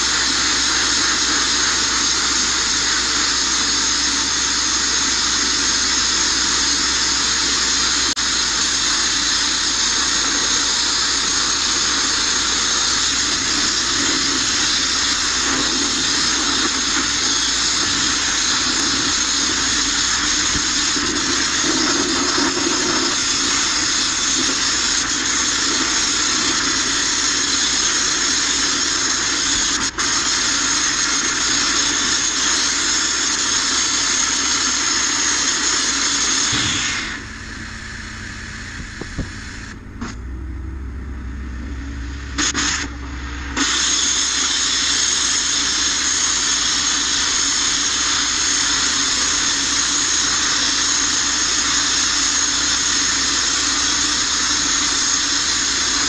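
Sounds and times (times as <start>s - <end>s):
blasting nozzle hissing: 0.0s - 56.0s
low hum: 36.0s - 44.3s.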